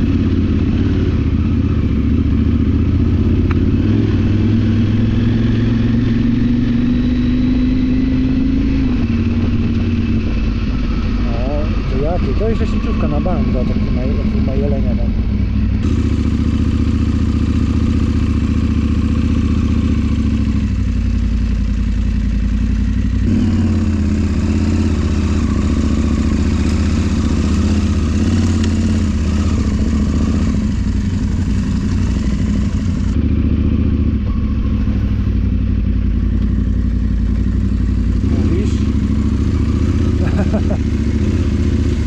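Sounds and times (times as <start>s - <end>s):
motorcycle engine running: 0.0s - 42.0s.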